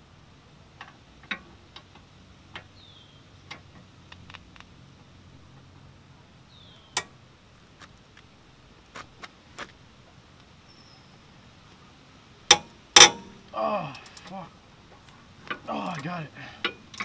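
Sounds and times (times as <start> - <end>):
bird chirp: 2.7 - 3.6, 6.4 - 7.1, 10.6 - 11.3.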